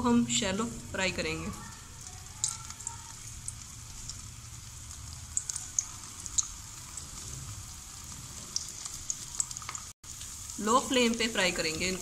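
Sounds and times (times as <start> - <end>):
food sizzling in hot oil: 0.0 - 12.0
oil pops and crackles: 2.0 - 10.4.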